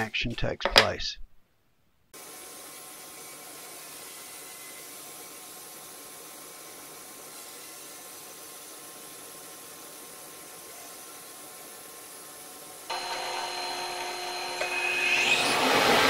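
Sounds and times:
bandsaw cutting wood: 12.9s - 16.0s.

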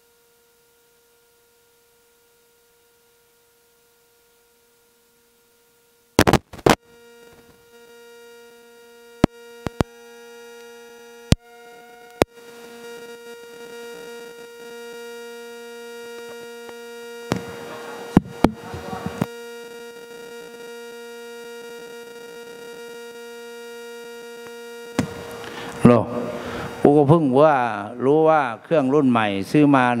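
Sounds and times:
electrical hum: 0.0s - 30.0s
loud pops: 6.2s - 6.8s, 17.3s - 19.3s, 24.9s - 25.6s.

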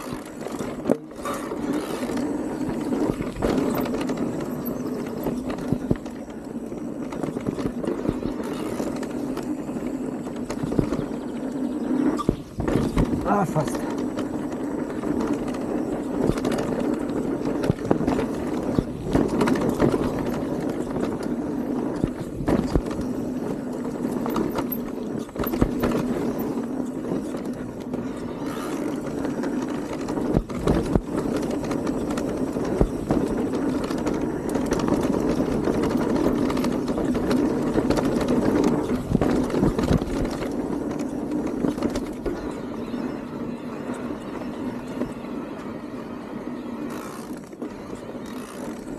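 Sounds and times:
bike knocks and rattles: 0.0s - 45.2s, 46.9s - 48.9s
bike tyre and drivetrain noise: 0.0s - 48.9s.

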